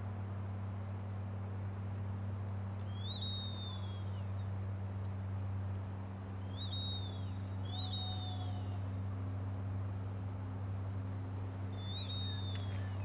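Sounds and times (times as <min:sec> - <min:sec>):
steady low hum: 0:00.0 - 0:13.0
bird whistle call: 0:02.9 - 0:04.2, 0:06.5 - 0:08.8, 0:11.8 - 0:13.0.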